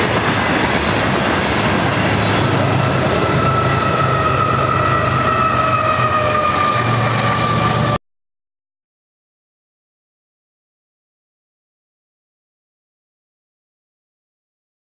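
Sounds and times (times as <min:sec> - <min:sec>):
diesel locomotive engine drone: 0:00.0 - 0:08.0
train wheels rumbling on rail: 0:00.0 - 0:08.0.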